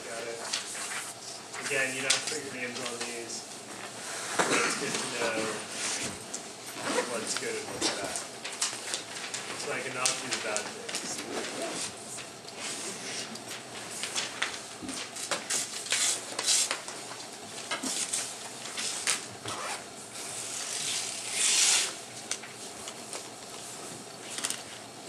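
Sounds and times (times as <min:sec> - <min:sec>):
paper sheets rustling: 0:00.0 - 0:04.0, 0:07.0 - 0:19.3.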